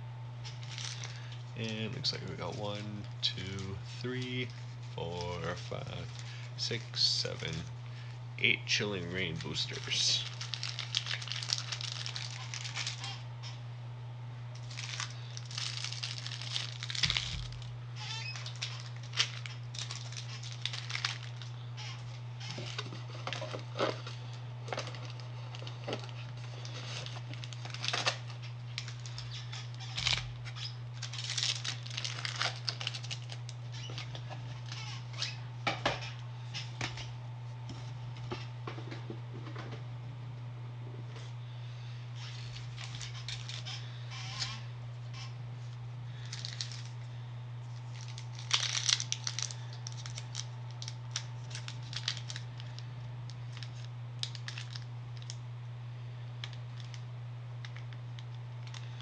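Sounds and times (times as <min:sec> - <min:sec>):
steady low hum: 0:00.0 - 0:59.0
foil wrappers crinkling: 0:00.4 - 0:08.1, 0:08.7 - 0:13.5, 0:14.6 - 0:37.1, 0:42.2 - 0:55.4, 0:56.3 - 0:59.0.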